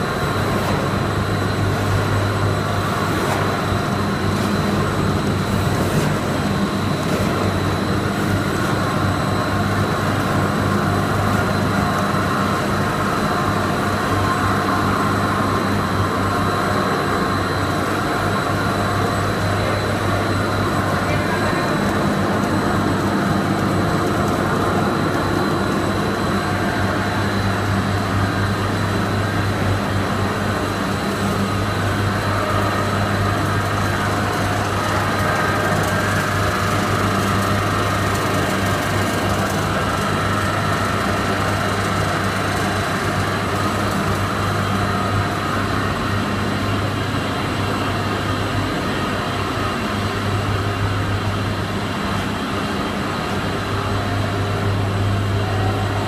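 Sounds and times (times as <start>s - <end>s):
production line machinery din: 0.0s - 56.0s.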